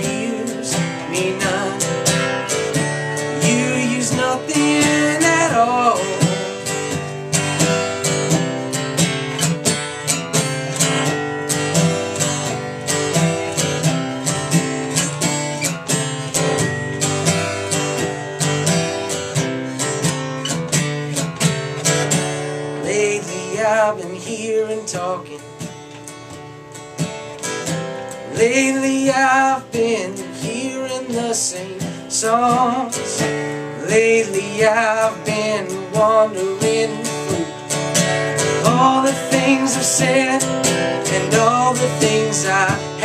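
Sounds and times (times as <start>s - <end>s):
acoustic guitar strumming: 0.0s - 43.0s.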